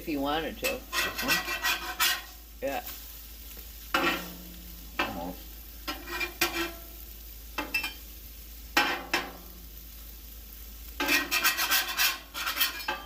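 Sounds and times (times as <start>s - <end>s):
food sizzling on a griddle: 0.0s - 13.0s
metal spatula scraping steel: 0.6s - 3.0s, 3.9s - 4.4s, 5.9s - 6.9s, 11.0s - 13.0s.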